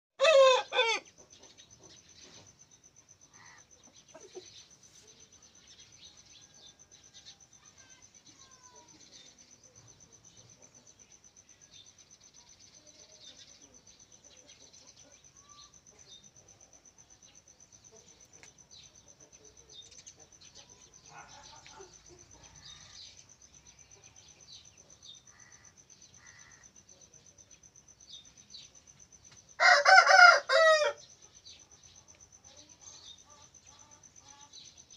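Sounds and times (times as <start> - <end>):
rooster crowing: 0.2 - 1.1, 29.6 - 31.0
faint bird chirps: 0.7 - 34.9
high insect trill: 2.2 - 14.5, 15.1 - 34.9.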